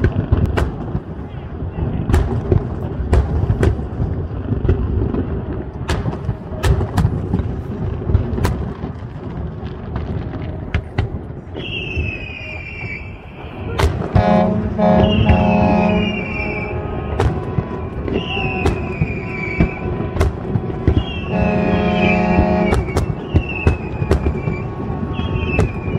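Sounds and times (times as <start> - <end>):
fireworks bangs: 0.0 - 25.9
firework whistle: 11.4 - 25.9
low rumble: 14.0 - 23.0.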